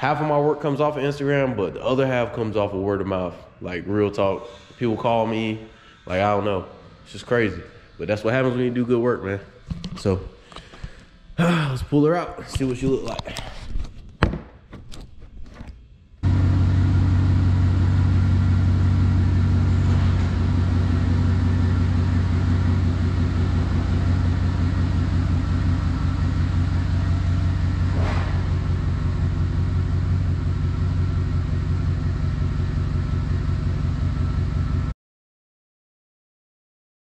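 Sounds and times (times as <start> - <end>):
truck engine rumbling: 16.2 - 34.9.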